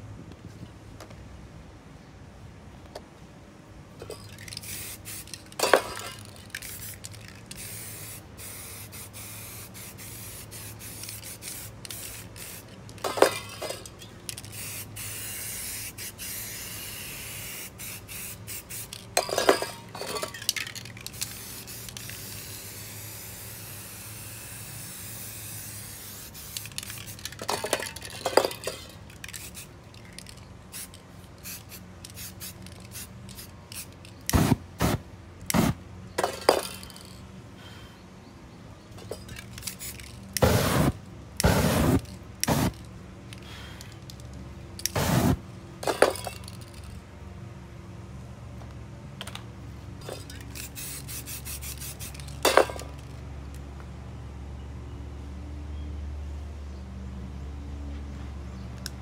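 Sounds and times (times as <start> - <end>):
aerosol spray can hissing: 4.6 - 5.4, 6.6 - 12.7, 14.5 - 19.0, 21.1 - 27.2, 30.8 - 35.0, 39.7 - 42.8, 44.9 - 45.4, 50.6 - 52.2.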